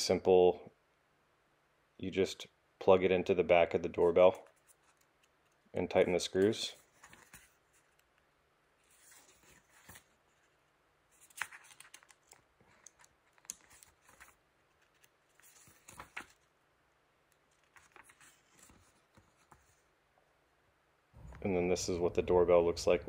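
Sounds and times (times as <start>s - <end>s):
paper pages flipping: 4.1s - 5.7s, 6.4s - 16.5s, 17.3s - 19.9s.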